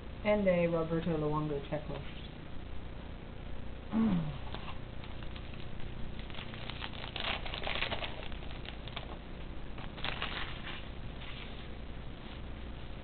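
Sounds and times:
trading cards rustling: 0:04.5 - 0:09.2, 0:09.8 - 0:11.7
foil wrapper crinkling: 0:04.5 - 0:11.8.

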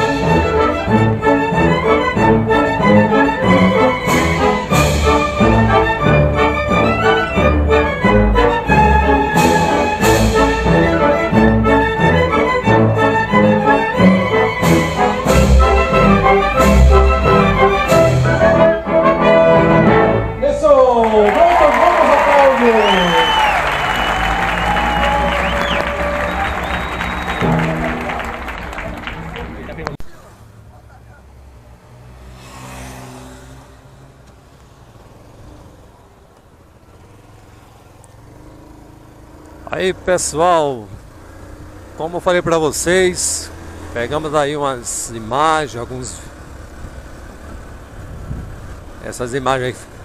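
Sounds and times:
orchestra playing brass passage: 0:00.0 - 0:20.7, 0:22.8 - 0:29.4
sharp loud orchestral accents: 0:00.0 - 0:29.6
road noise: 0:00.0 - 0:50.0
vehicle engine running: 0:22.8 - 0:50.0.

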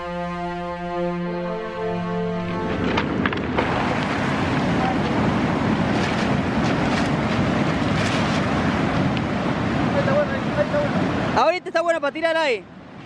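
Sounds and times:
background music: 0:00.0 - 0:03.6
wind buffeting microphone: 0:02.3 - 0:11.8
surf breaking on pebble shore: 0:02.5 - 0:11.5.

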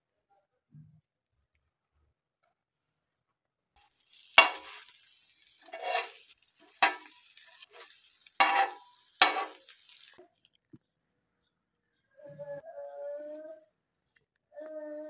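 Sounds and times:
bread sizzling in oil: 0:03.8 - 0:10.2
metal utensil scraping pan: 0:04.0 - 0:10.2.

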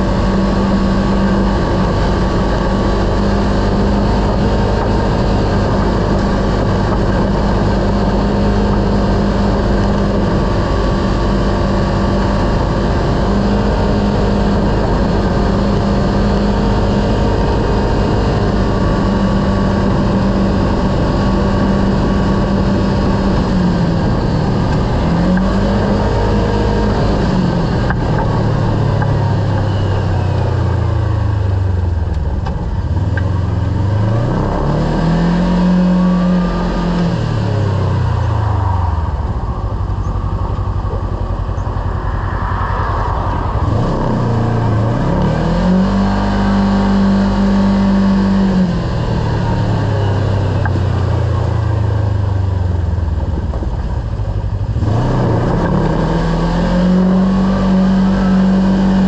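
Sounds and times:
engine running steady drone: 0:00.0 - 0:59.0
rushing noise: 0:32.6 - 0:59.0.

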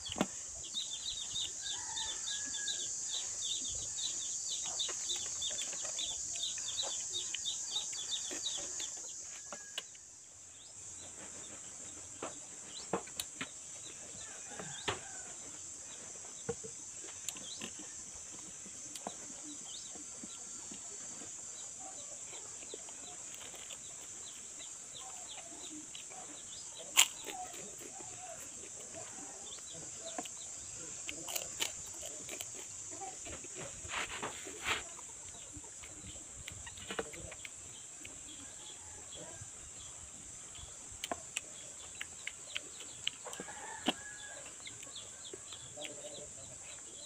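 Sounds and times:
chewing: 0:17.0 - 0:38.8, 0:40.9 - 0:46.8.

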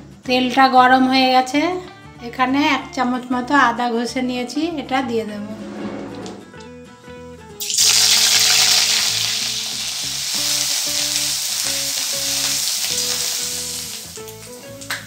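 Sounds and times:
ginger sizzling in hot oil: 0:07.6 - 0:15.0.

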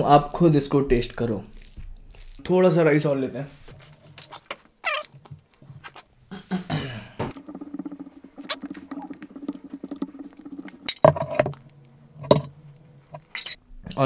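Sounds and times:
fingers squishing wet rice: 0:01.2 - 0:02.5.

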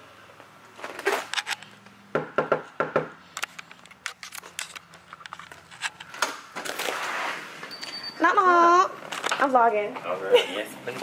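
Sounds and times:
knocking on door: 0:02.1 - 0:03.2
clicks and rustling: 0:03.3 - 0:07.0.

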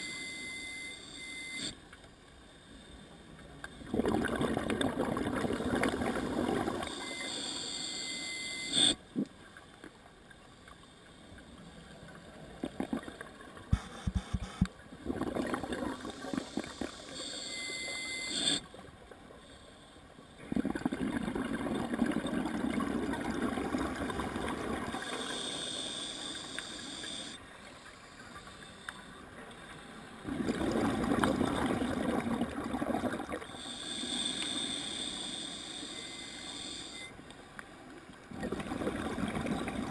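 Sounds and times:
bubbling exhale through regulator: 0:03.9 - 0:07.9, 0:15.0 - 0:17.6, 0:20.4 - 0:27.4, 0:30.2 - 0:35.6, 0:38.3 - 0:39.9
regulator hiss on inhale: 0:06.6 - 0:09.0, 0:16.0 - 0:18.7, 0:19.4 - 0:20.4, 0:25.0 - 0:30.2, 0:33.4 - 0:37.1.

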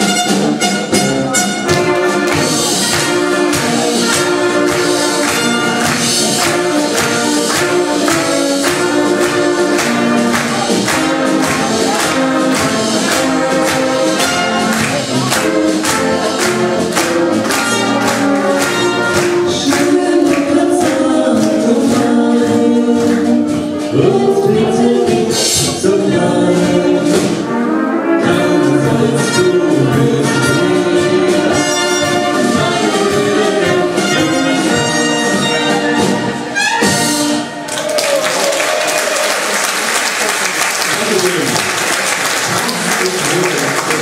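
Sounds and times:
brass band playing: 0:00.0 - 0:44.0
voices singing along: 0:19.5 - 0:27.5, 0:28.2 - 0:34.8.

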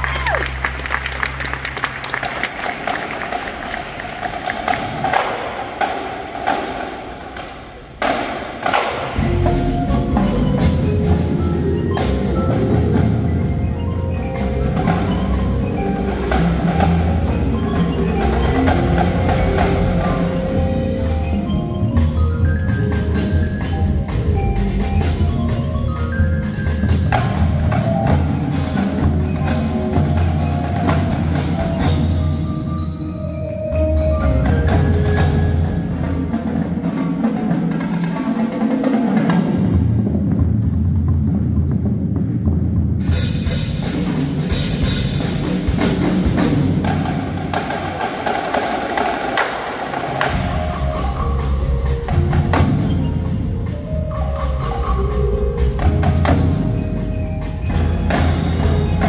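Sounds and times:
drums and cymbals: 0:03.4 - 0:59.0
marimbas and mallet keyboards: 0:09.0 - 0:40.2, 0:42.1 - 0:59.0.

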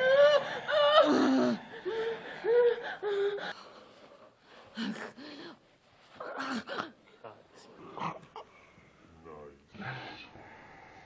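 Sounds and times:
woman whimpering: 0:00.0 - 0:03.6
gasping breaths: 0:00.0 - 0:07.2.

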